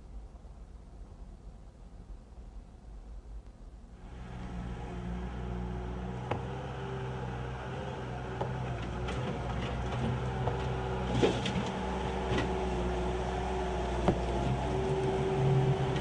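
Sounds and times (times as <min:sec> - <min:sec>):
skid-steer loader engine running: 0:04.0 - 0:16.0.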